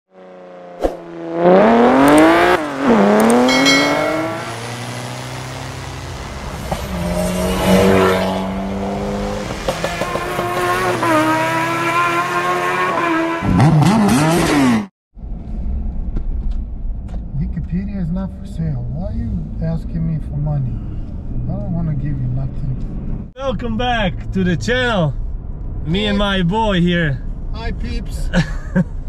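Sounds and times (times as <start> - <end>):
engine revving: 0.1 - 14.9
car engine accelerating: 0.1 - 23.3.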